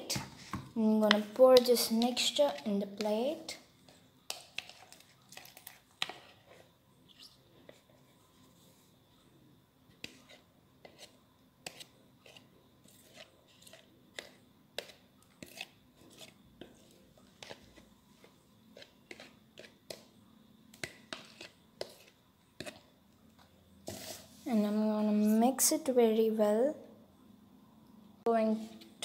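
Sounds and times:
plastic spoon scraping cup: 0:10.0 - 0:20.1, 0:20.8 - 0:22.9.

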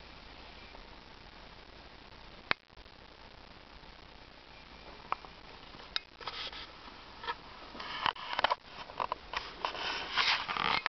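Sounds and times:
short rustling scrapes: 0:06.2 - 0:06.8, 0:07.7 - 0:10.9.

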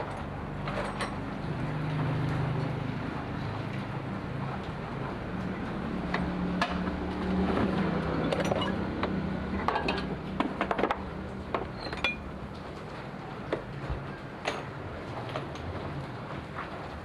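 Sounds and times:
hand tools clinking on metal: 0:08.2 - 0:08.9, 0:11.8 - 0:12.3.

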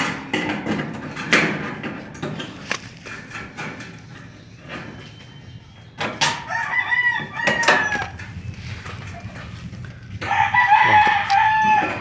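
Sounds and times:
rooster crowing: 0:06.3 - 0:08.2, 0:10.2 - 0:12.0.

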